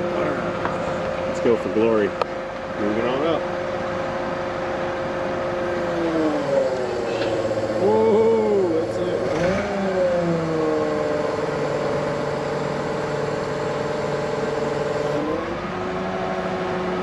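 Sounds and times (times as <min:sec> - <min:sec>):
forklift engine revving: 0:00.0 - 0:17.0.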